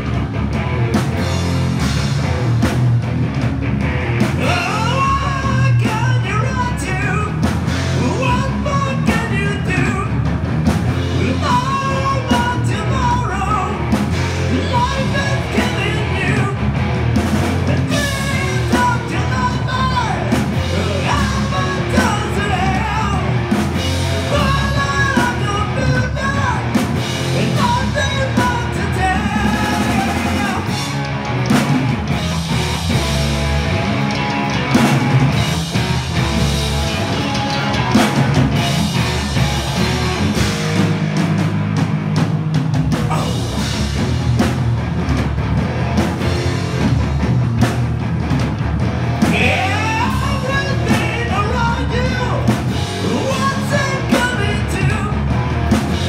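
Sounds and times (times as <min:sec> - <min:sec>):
bass guitar: 0:00.0 - 0:56.0
distorted electric guitar: 0:00.0 - 0:56.0
drum kit: 0:00.0 - 0:56.0
shouted vocals: 0:04.4 - 0:07.4, 0:17.7 - 0:23.5, 0:24.2 - 0:30.8, 0:43.0 - 0:43.6, 0:49.3 - 0:55.3.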